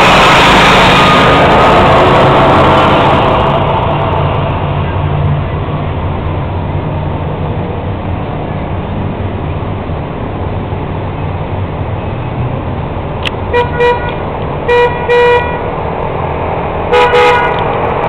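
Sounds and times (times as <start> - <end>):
steady low rumble: 0.0 - 18.0
vehicle horn honking: 13.5 - 15.7, 16.9 - 17.7.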